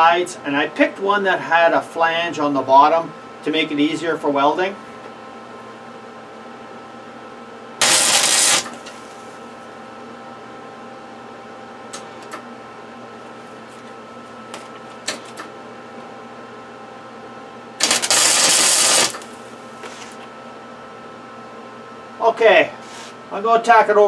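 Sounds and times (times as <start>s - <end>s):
background hum: 0.0s - 20.8s
welding arc: 7.8s - 9.0s, 17.8s - 19.4s.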